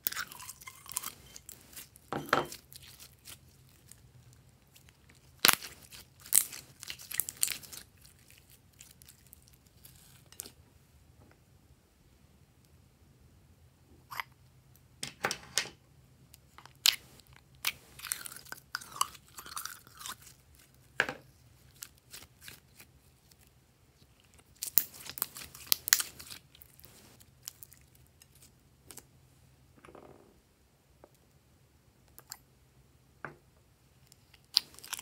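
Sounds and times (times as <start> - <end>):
slime crackling and squelching: 0.0 - 10.5, 21.6 - 29.0.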